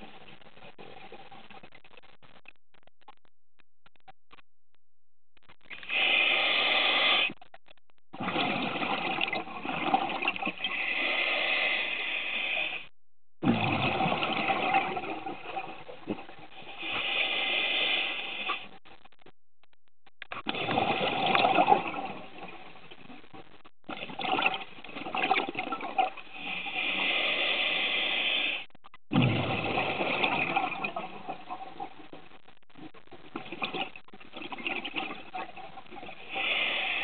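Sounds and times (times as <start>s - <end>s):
scuba regulator exhaust bubbles: 8.1s - 12.8s, 13.4s - 18.7s, 20.3s - 23.0s, 23.9s - 32.1s, 33.2s - 37.0s.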